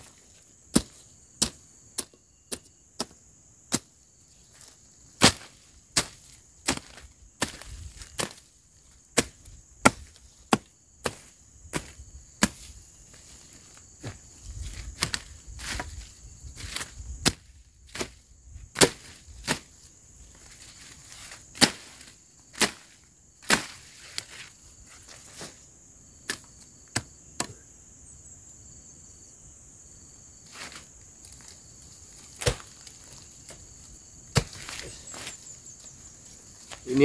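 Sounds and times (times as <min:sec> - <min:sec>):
machete chopping brush: 0:00.1 - 0:04.0, 0:05.2 - 0:08.5, 0:09.2 - 0:12.7, 0:16.6 - 0:18.2, 0:18.8 - 0:19.7, 0:20.6 - 0:25.6, 0:32.2 - 0:33.6, 0:34.3 - 0:35.4
high-pitched insect buzz: 0:24.0 - 0:37.0.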